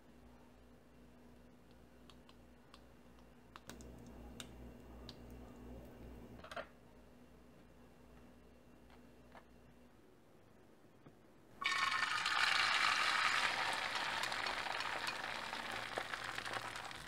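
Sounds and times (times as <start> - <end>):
crackling sputter: 11.6 - 17.0.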